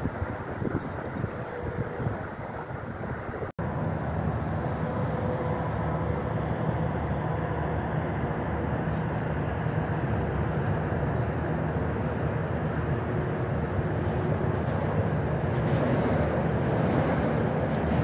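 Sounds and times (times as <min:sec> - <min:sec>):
vehicle low rumble: 0:00.0 - 0:18.0.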